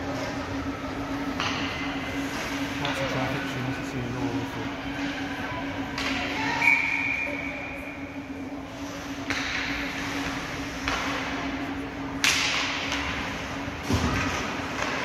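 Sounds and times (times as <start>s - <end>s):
steady hum: 0.0s - 15.0s
sticks and puck clacking: 9.2s - 11.5s, 12.2s - 15.0s.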